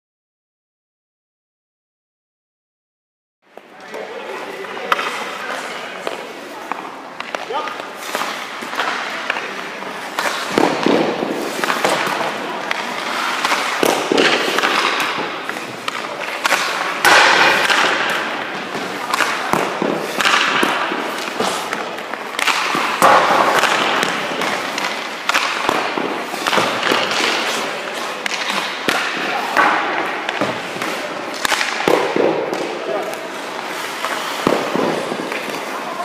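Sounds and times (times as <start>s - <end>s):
pucks cracking and thudding: 3.6s - 36.0s
skate blades scraping ice: 3.9s - 36.0s.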